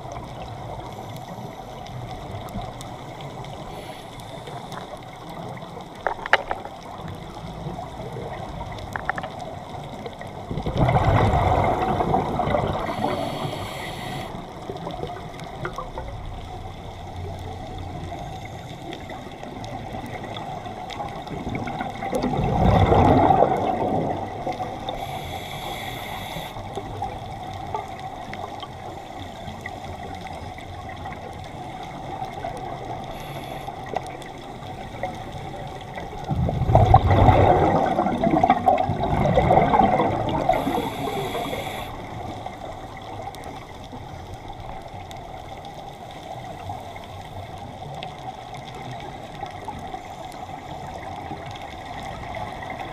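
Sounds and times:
underwater hum: 0.0s - 52.9s
gushes of exhaled bubbles: 6.0s - 13.6s, 20.0s - 25.2s, 34.8s - 42.3s
high hiss of regulator breath: 12.8s - 14.4s, 24.9s - 26.6s, 33.1s - 33.9s, 40.5s - 42.2s.

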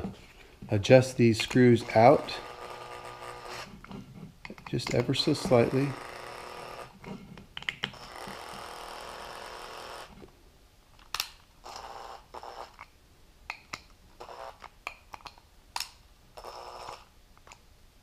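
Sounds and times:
electric screwdriver running: 1.9s - 3.7s, 5.3s - 6.9s, 7.9s - 10.2s, 11.6s - 12.8s.

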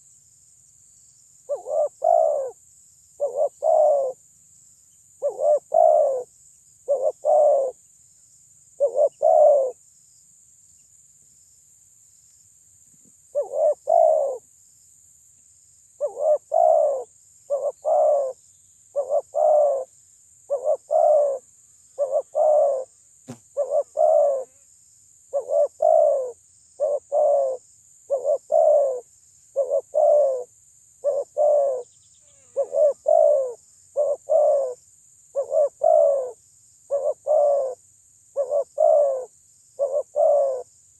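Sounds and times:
dove cooing: 1.5s - 2.6s, 3.2s - 4.2s, 5.2s - 7.8s, 8.8s - 9.8s, 13.3s - 14.4s, 16.0s - 19.9s, 20.5s - 21.4s, 22.0s - 22.9s, 23.5s - 24.5s, 25.3s - 31.9s, 32.6s - 34.8s, 35.4s - 37.8s, 38.4s - 40.7s.

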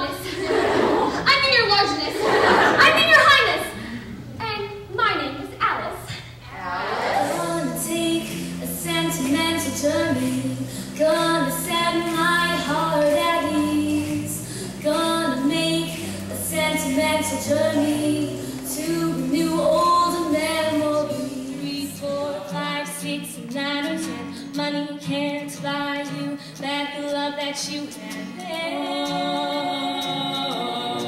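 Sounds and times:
girl singing into microphone: 7.2s - 31.0s.

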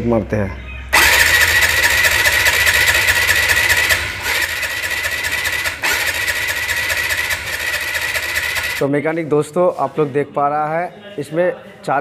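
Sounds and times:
motorcycle starter cranking engine: 1.0s - 8.8s.

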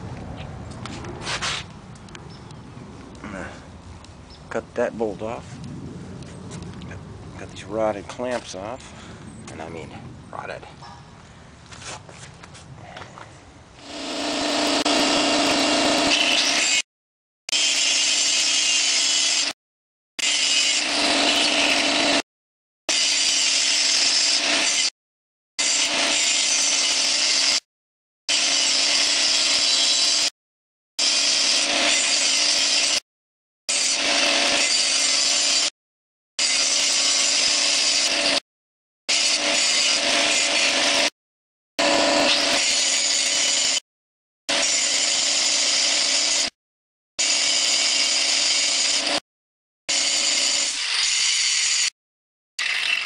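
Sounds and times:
angle grinder cutting steel: 13.8s - 16.9s, 17.5s - 19.6s, 20.2s - 22.2s, 22.9s - 24.9s, 25.6s - 27.6s, 28.3s - 30.3s, 31.0s - 33.0s, 33.7s - 35.7s, 36.4s - 38.4s, 39.1s - 41.1s, 41.8s - 43.8s, 44.5s - 46.6s, 47.2s - 49.2s, 49.9s - 51.9s, 52.6s - 53.0s.

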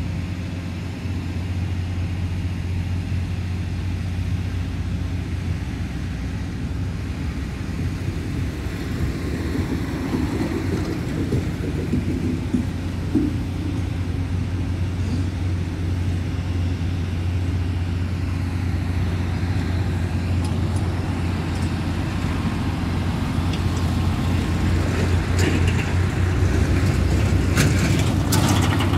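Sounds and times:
diesel engine idling: 0.0s - 28.9s.

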